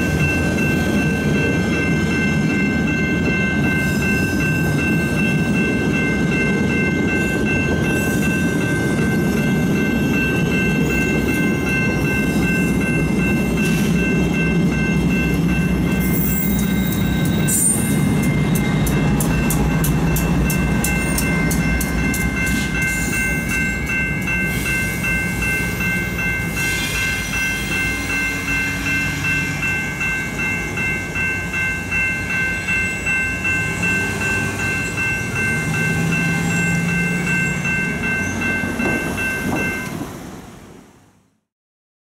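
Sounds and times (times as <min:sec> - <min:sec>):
railroad crossing bells ringing: 0:00.0 - 0:40.9
low train rumble: 0:00.0 - 0:41.3
train wheels clicking: 0:02.5 - 0:40.2.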